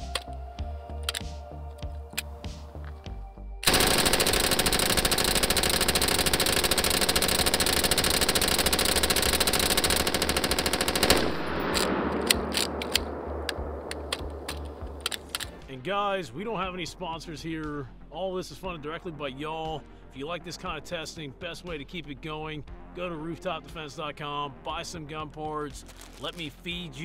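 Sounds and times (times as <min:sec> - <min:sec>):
machine gun automatic burst: 0:03.7 - 0:13.1
gunshot echo: 0:11.2 - 0:15.3.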